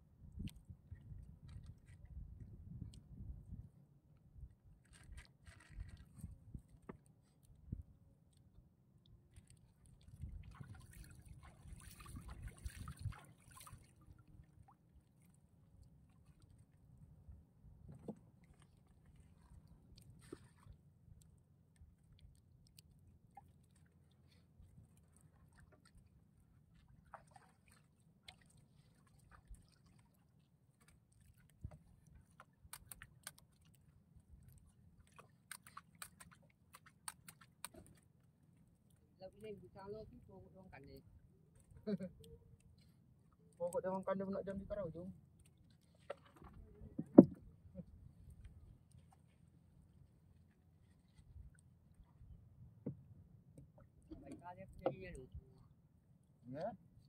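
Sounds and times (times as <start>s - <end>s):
seawater sloshing against boat: 9.9s - 15.4s, 43.6s - 51.4s
faint low rumble: 38.6s - 57.0s.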